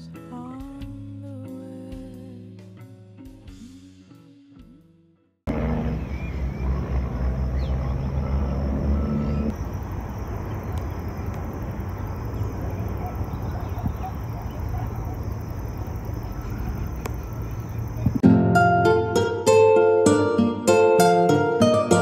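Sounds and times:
insect chirring: 6.0 - 18.2
plucked-string music: 18.2 - 22.0.

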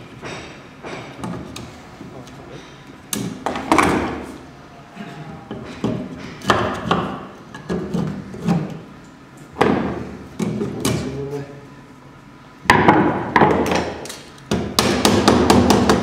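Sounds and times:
knocks and thuds on wood: 9.6 - 11.0, 12.7 - 13.9, 14.5 - 16.0.

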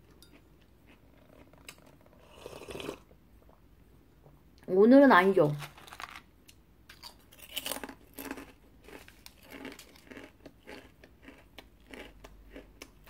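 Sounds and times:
cookie crunching: 5.5 - 6.3, 6.9 - 13.0
chewing crackles: 7.8 - 13.0.

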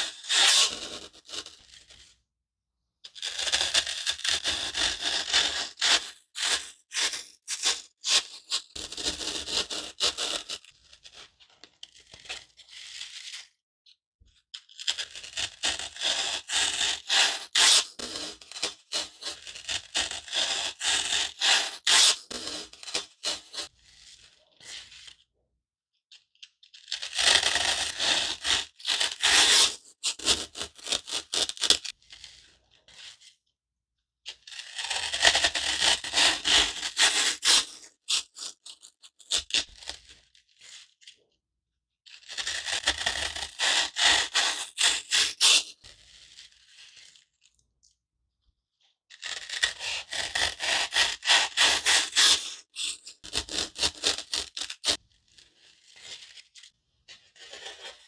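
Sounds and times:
foam block being cut: 0.0 - 2.0, 3.2 - 11.1, 14.7 - 25.2, 26.8 - 32.4, 34.4 - 40.2, 42.2 - 47.1, 49.2 - 56.4.

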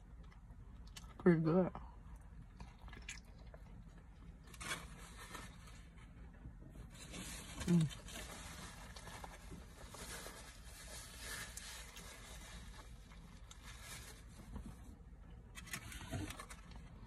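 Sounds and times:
person chewing food: 1.9 - 4.3.

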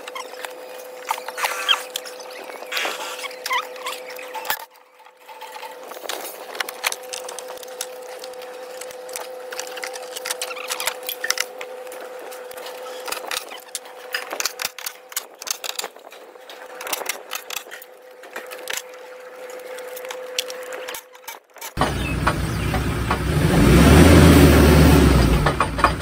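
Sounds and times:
steady machine hum: 21.8 - 26.0.

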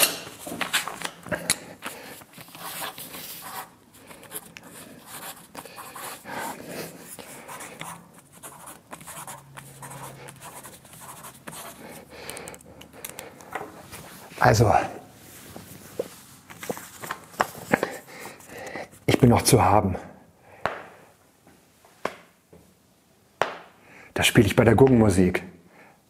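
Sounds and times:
pen scratching on paper: 2.4 - 13.2.

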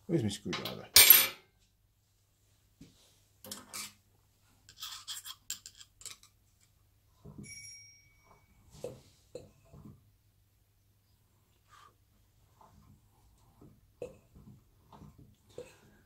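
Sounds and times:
screwdriver scraping on metal: 4.7 - 6.2
brief metallic ring: 7.4 - 8.2.

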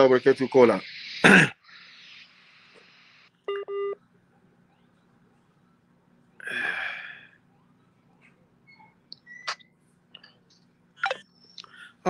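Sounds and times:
hiss over phone line: 0.0 - 3.3.

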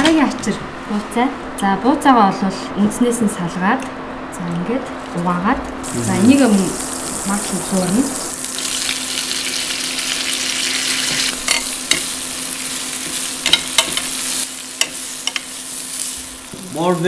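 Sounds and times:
butter sizzling in pan: 5.8 - 17.0.

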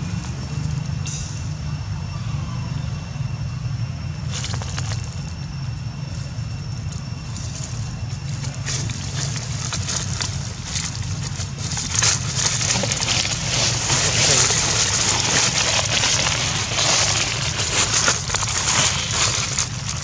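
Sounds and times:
low rumble: 0.0 - 20.0
dry leaves rustling and crackling: 4.3 - 5.3, 6.2 - 20.0.

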